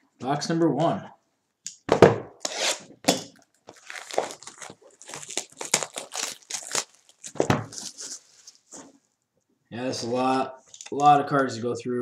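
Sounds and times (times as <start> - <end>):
cellophane tearing and crinkling: 2.6 - 8.7.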